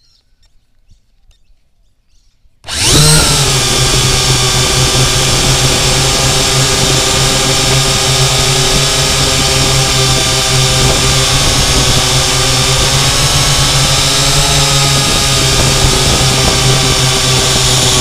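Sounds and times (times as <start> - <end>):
drone propellers whining: 2.6 - 18.0.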